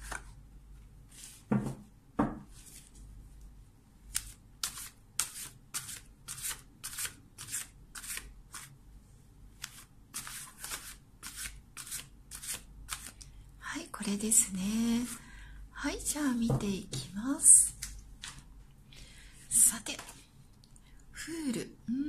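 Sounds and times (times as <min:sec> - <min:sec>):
cards shuffling: 0:09.6 - 0:13.2.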